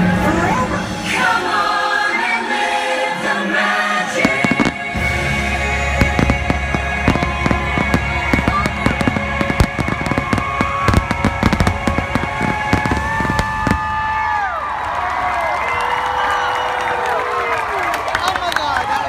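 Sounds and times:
loud show music: 0.0 - 13.8.

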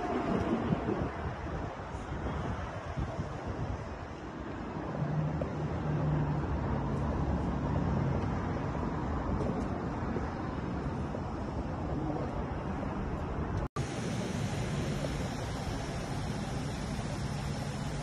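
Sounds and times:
car engine idling: 13.8 - 18.0.

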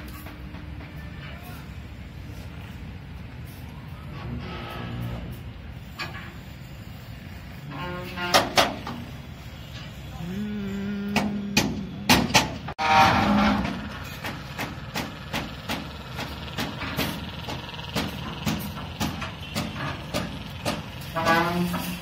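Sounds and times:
traffic hum: 0.0 - 22.0
steady horn-like tone: 12.8 - 13.6.

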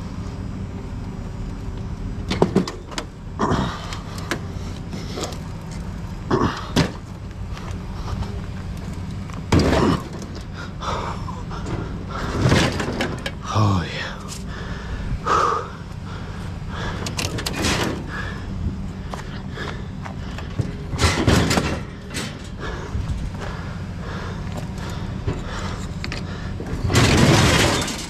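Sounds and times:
steady low hum: 0.0 - 28.0
scrap metal thumps and clanks: 9.5 - 10.5, 11.6 - 13.4, 17.0 - 18.1, 20.3 - 22.6, 25.2 - 28.0.

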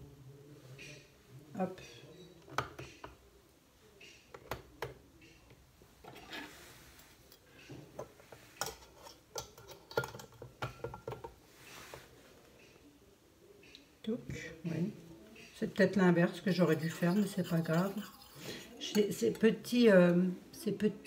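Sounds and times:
metal bowls clinking: 7.2 - 11.4, 16.3 - 19.8.

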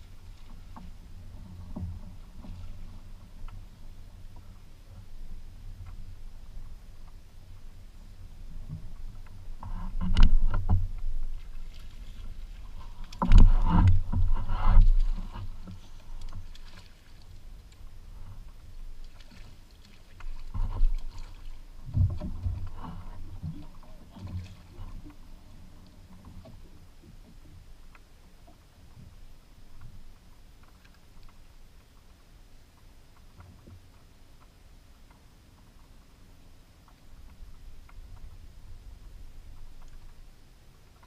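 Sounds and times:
water at boat hull: 0.0 - 41.0
knocks and thumps on boat: 0.4 - 5.1, 8.6 - 16.9, 18.2 - 27.7.

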